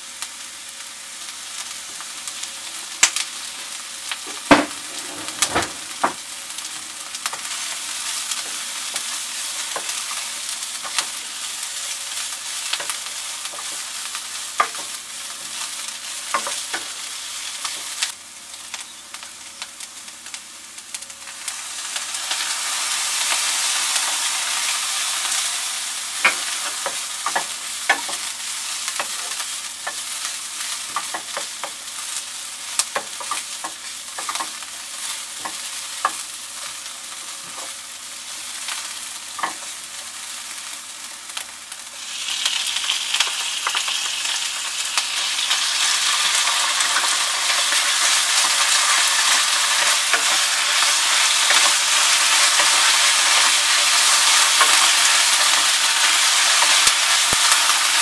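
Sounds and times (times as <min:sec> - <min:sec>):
vegetables sizzling in a frying pan: 0:00.0 - 0:58.0
wooden spatula clicking and scraping: 0:32.8 - 0:34.6.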